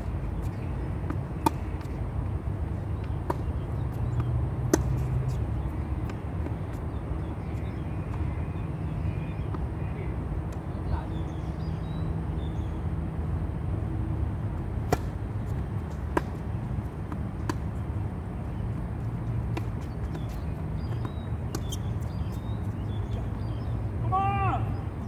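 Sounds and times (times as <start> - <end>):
tennis ball pops: 14.9 - 15.2.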